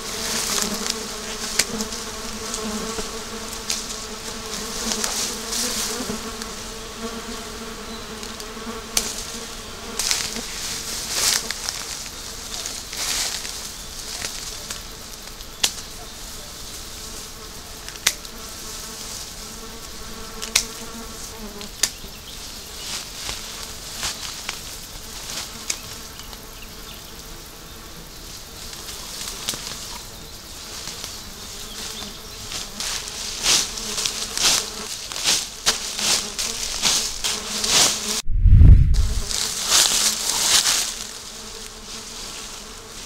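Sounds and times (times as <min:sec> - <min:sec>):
leafy branches rustling and crackling: 0:00.0 - 0:26.6, 0:28.0 - 0:43.0
fly buzzing: 0:00.0 - 0:43.0
twigs snapping: 0:11.2 - 0:15.9, 0:17.8 - 0:18.3.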